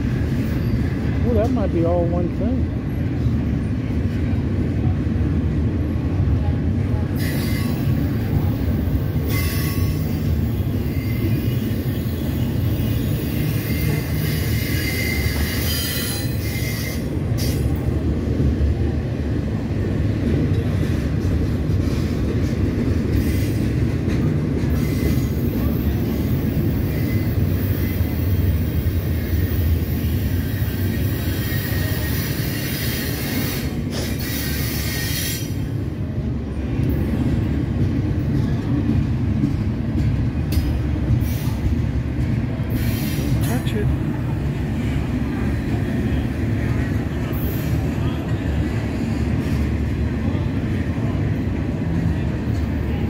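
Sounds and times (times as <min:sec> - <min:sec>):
freight train rumbling past: 0:00.0 - 0:53.0
hiss: 0:42.8 - 0:43.4.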